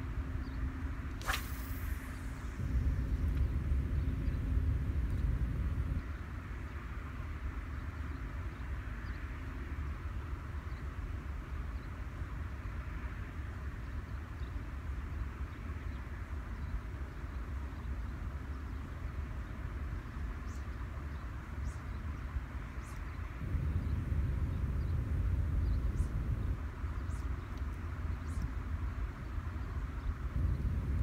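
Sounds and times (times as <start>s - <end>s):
faint hiss: 1.1s - 3.9s
low rumble: 1.3s - 6.3s.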